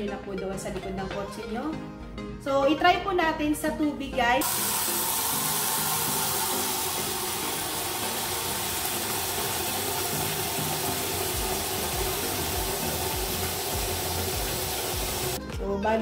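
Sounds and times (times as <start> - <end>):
tap water pouring into bucket: 4.4 - 15.4
water splashing: 4.4 - 15.4.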